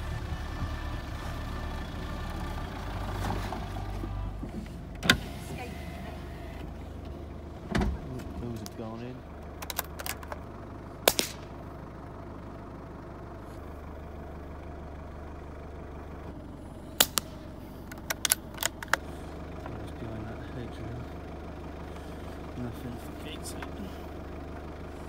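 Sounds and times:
vehicle engine idling: 0.0s - 25.0s
rifle action clicks: 9.6s - 10.4s, 17.9s - 19.0s
rifle shots: 11.1s - 11.5s.

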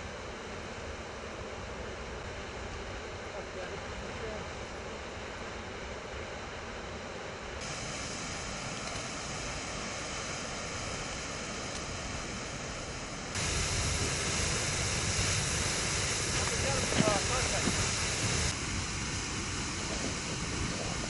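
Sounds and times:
water jetting from burst pipe: 7.6s - 21.0s.

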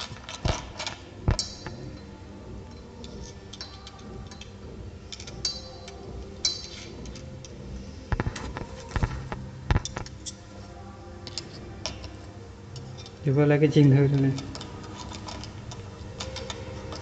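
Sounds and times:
small metal clicks and clinks: 2.7s - 7.6s, 14.2s - 17.0s.

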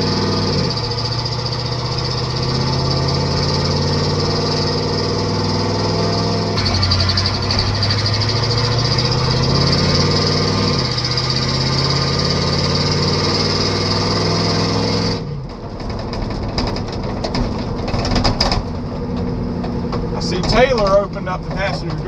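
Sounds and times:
truck engine accelerating: 0.0s - 22.0s
car door rattling: 15.3s - 22.0s.

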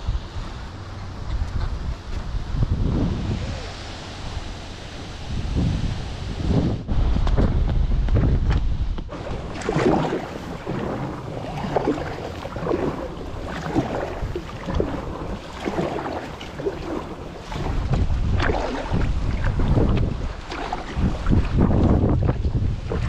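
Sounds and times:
wind rumble on microphone: 0.0s - 23.0s
paddle strokes: 9.0s - 23.0s
water splashing: 9.1s - 23.0s.

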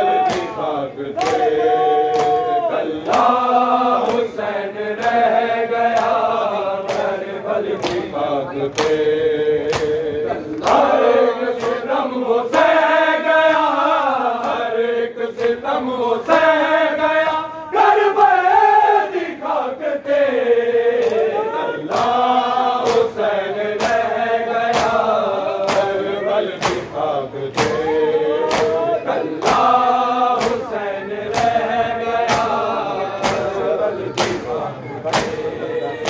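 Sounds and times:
men chanting a lament: 0.0s - 36.0s
hand slaps on chest: 9.7s - 10.0s, 25.6s - 26.0s, 28.5s - 28.8s, 30.4s - 30.7s, 31.3s - 31.6s, 32.3s - 32.6s, 33.2s - 33.6s.

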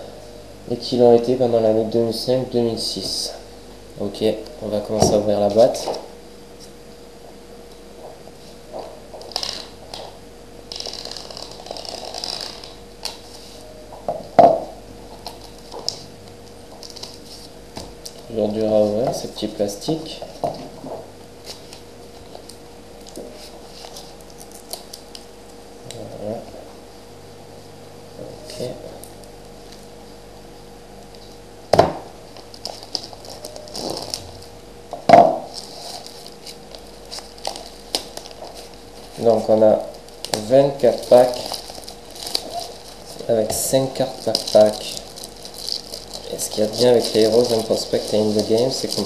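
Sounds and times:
faint steady hum: 0.0s - 49.0s
shrink wrap crinkling and tearing: 9.1s - 13.4s, 15.2s - 19.5s, 21.4s - 25.3s, 32.3s - 34.5s, 35.4s - 49.0s.

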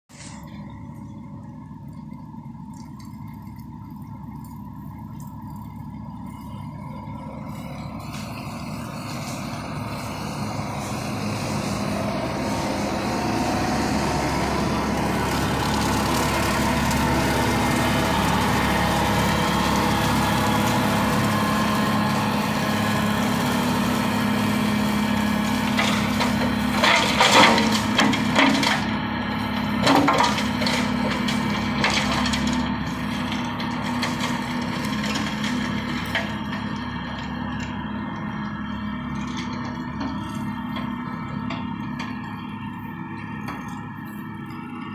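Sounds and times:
mulcher mechanical drone: 0.1s - 44.9s.

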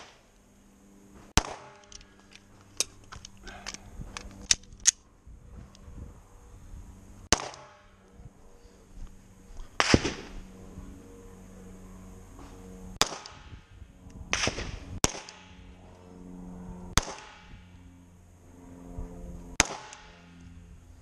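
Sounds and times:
pistol shots: 1.4s - 1.9s, 7.3s - 7.8s, 9.8s - 10.4s, 13.0s - 13.5s, 14.3s - 15.6s, 17.0s - 17.5s, 19.6s - 20.2s.

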